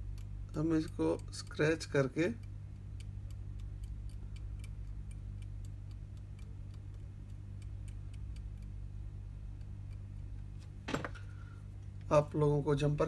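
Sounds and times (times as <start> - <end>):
metal blade scraping ticks: 0.0 - 8.8
steady low hum: 0.0 - 13.0.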